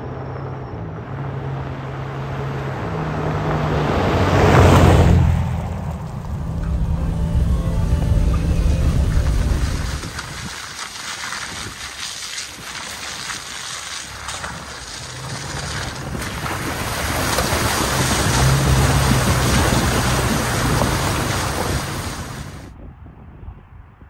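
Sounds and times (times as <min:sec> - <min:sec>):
tyres splashing through water: 0:03.2 - 0:22.7
rushing noise: 0:04.1 - 0:13.4
truck engine humming: 0:04.2 - 0:11.2, 0:13.5 - 0:22.7.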